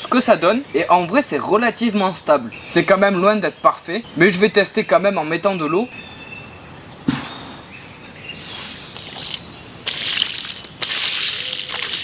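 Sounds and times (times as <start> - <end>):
thump: 7.0 - 7.6
water pouring from a pot: 9.0 - 12.0.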